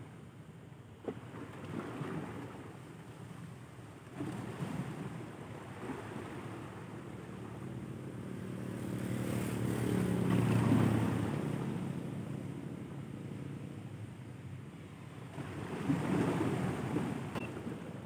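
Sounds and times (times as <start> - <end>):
low engine hum: 0.0 - 18.0
wind on microphone: 4.2 - 18.0
sea water washing against rocks: 15.3 - 18.0.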